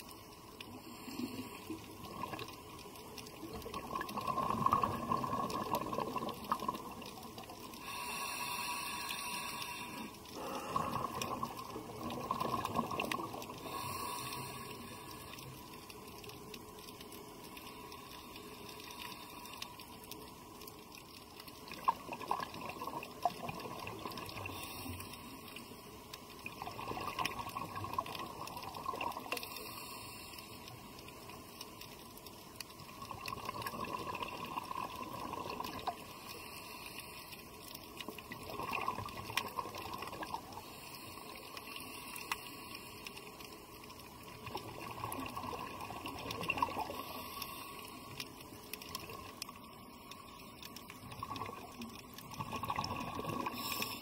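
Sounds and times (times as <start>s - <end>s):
faint clicks: 0.0s - 54.0s
underwater air bubbles: 0.0s - 54.0s.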